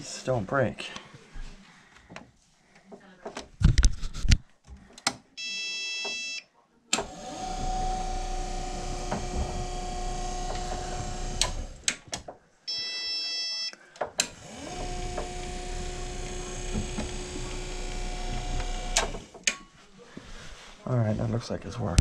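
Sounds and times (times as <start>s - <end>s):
stairlift motor humming: 7.0s - 11.9s, 14.3s - 19.3s.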